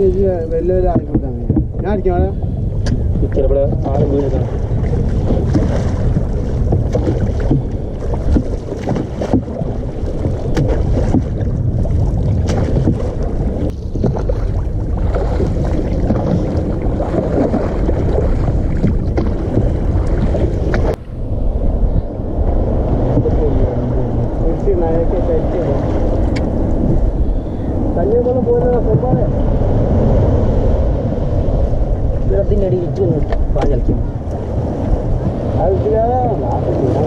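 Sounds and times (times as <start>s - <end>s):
water sloshing around boat: 0.0s - 30.4s, 31.4s - 37.0s
wind buffeting microphone: 0.0s - 37.0s
oar knocking against thole pin: 0.8s - 4.6s, 5.2s - 11.6s, 12.2s - 21.0s, 33.0s - 34.0s.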